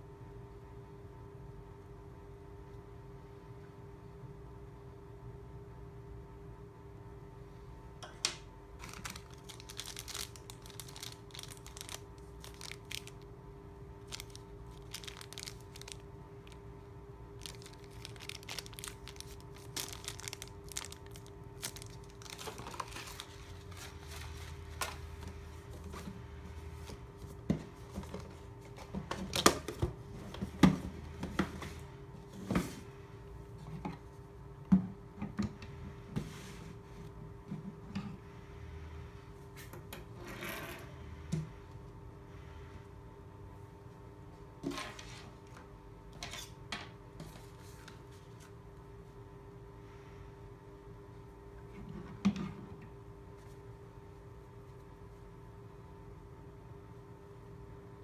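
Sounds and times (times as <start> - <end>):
plastic bag crinkling: 8.8 - 13.3, 14.0 - 16.6, 17.4 - 25.2.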